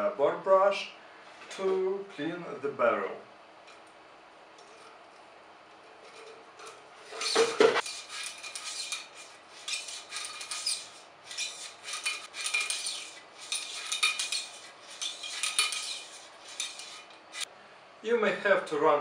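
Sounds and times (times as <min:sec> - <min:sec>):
brush scraping through barrel: 0:05.9 - 0:17.5.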